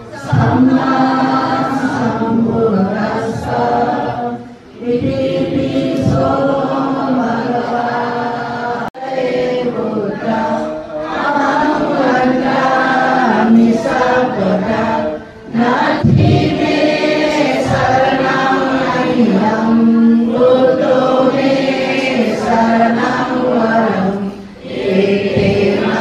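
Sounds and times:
group chanting in unison: 0.0 - 26.0.

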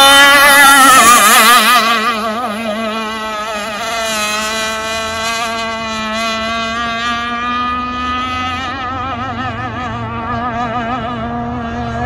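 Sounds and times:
model boat engine buzzing: 0.0 - 12.0.

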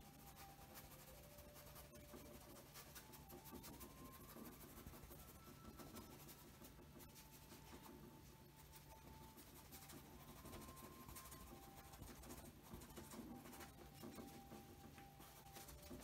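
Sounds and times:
paintbrush scratching on canvas: 0.0 - 16.0.

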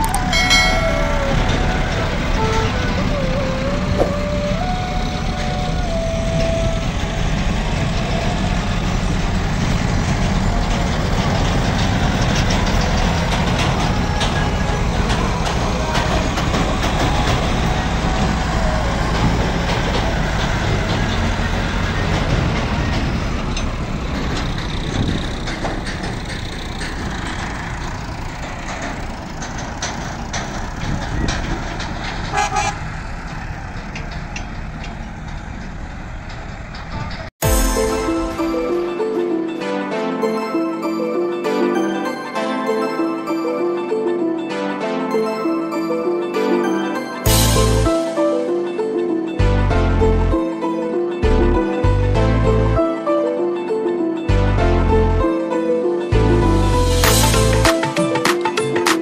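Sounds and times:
diesel engines under load: 0.0 - 59.0
horn tone: 32.3 - 32.8.

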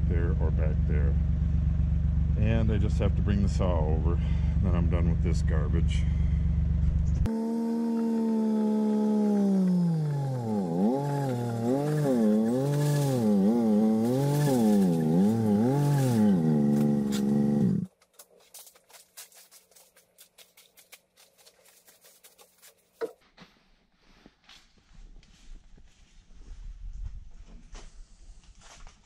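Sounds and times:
small petrol engine running: 6.1 - 17.9.

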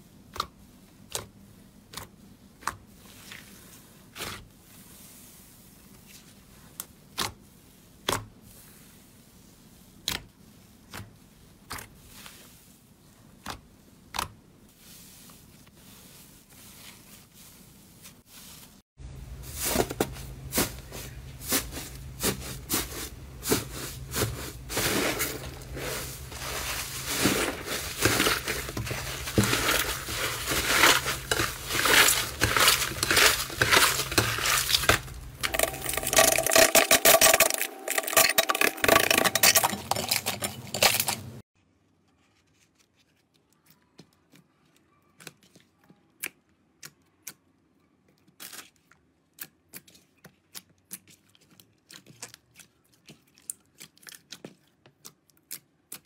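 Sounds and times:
foam slime crackling and crunching: 19.5 - 41.2.

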